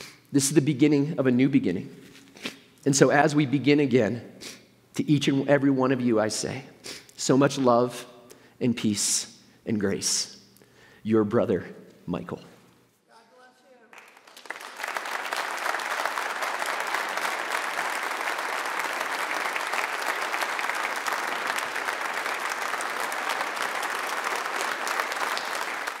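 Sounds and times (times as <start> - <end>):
crowd applauding: 13.8 - 26.0.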